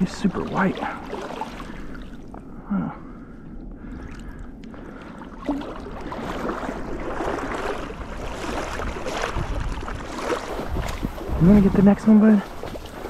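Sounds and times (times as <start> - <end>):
water sloshing around wading legs: 0.0 - 13.0.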